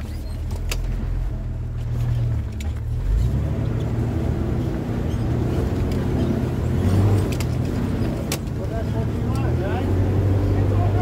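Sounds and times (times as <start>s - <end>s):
engine and drivetrain rumble: 0.0s - 11.0s.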